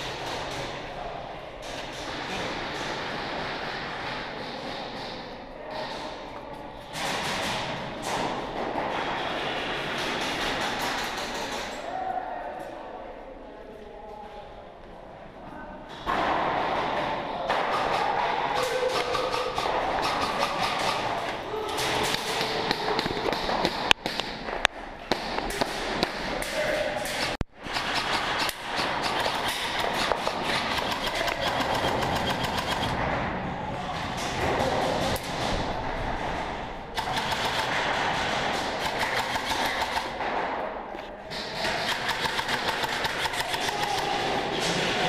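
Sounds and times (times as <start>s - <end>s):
airsoft guns rapid fire: 6.9s - 11.8s, 16.1s - 24.4s, 25.1s - 33.2s, 34.0s - 40.6s, 41.3s - 45.0s
sharp cracks: 16.0s - 45.0s.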